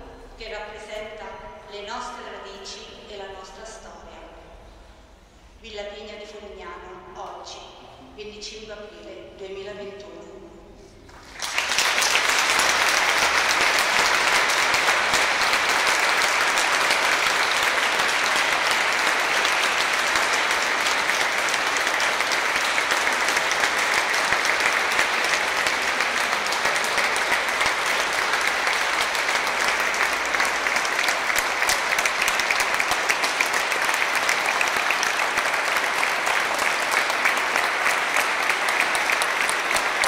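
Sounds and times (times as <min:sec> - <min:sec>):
crowd applauding: 0:11.1 - 0:40.0.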